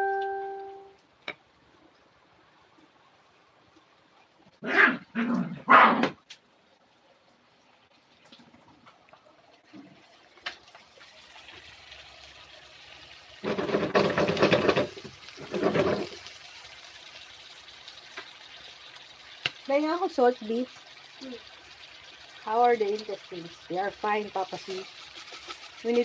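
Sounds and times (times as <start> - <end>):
dog barking: 5.6 - 6.2
food sizzling in oil: 9.6 - 26.0.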